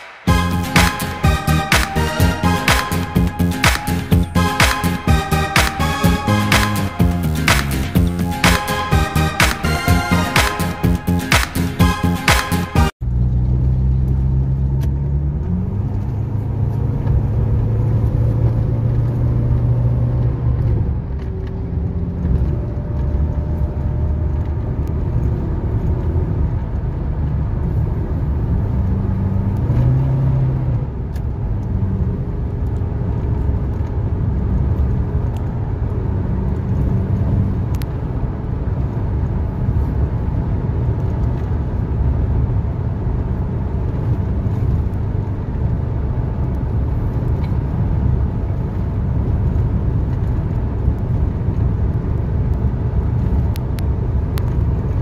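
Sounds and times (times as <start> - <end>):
road noise: 0.0 - 55.0
engine inside car cabin: 13.0 - 55.0.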